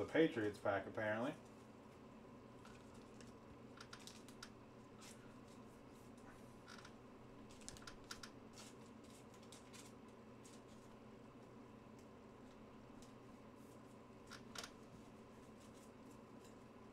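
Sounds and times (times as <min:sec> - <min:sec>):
low room hum: 0:00.0 - 0:16.9
soft rustles: 0:01.4 - 0:11.6, 0:12.4 - 0:16.8.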